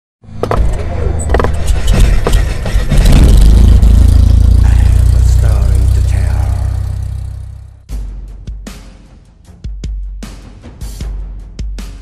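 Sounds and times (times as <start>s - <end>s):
deep engine-like rumble: 0.5s - 7.9s
sharp crackling hits: 1.4s - 7.2s.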